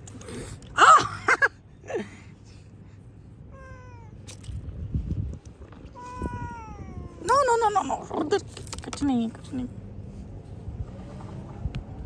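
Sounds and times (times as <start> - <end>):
kitten meowing: 6.0 - 7.5.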